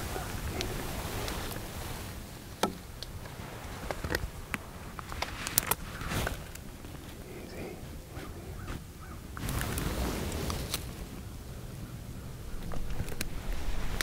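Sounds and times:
gear clicks and rustles: 0.0s - 8.4s.

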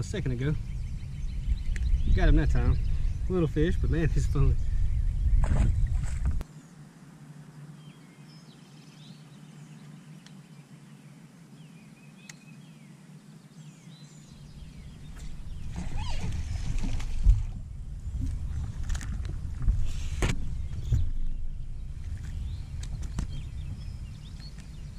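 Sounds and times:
fish splashing and thrashing: 15.0s - 20.5s.

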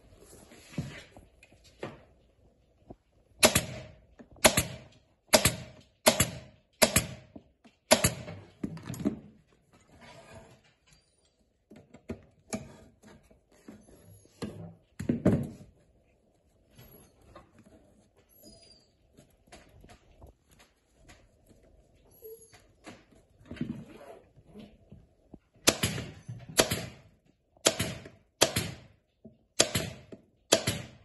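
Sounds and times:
staple gun firing into wood: 3.4s - 7.3s, 7.9s - 8.4s, 25.7s - 27.0s, 27.6s - 28.9s, 29.6s - 31.0s.

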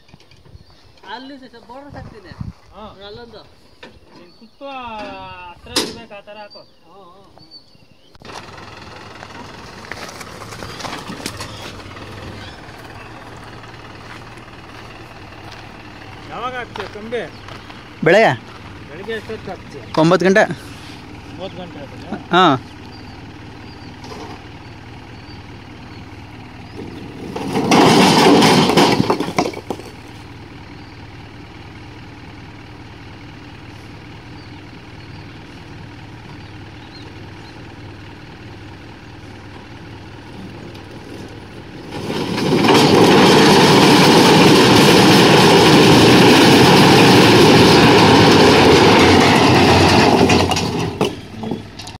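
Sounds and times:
tractor engine running: 8.0s - 52.0s
stones sliding off rumbling: 8.2s - 21.4s, 26.7s - 30.4s, 40.5s - 52.0s
stone blocks clattering: 27.2s - 30.0s, 41.8s - 52.0s.

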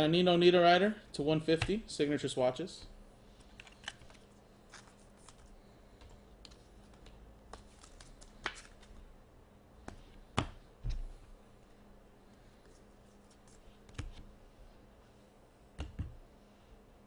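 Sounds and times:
cards clicking and tapping: 6.4s - 9.0s.

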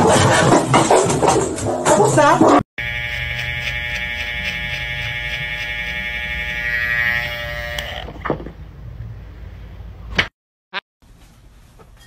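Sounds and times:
hair trimmer buzzing: 2.8s - 8.1s.

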